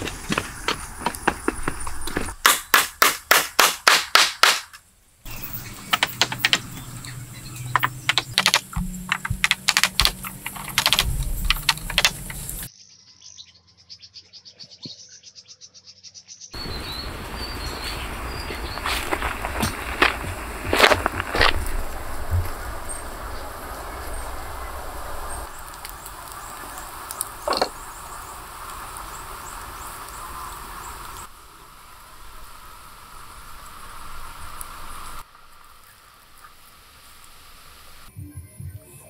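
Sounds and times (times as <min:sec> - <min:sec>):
birds chirping: 0:00.0 - 0:02.4, 0:05.2 - 0:35.2
wooden poles knocking: 0:05.8 - 0:07.0, 0:07.7 - 0:12.6.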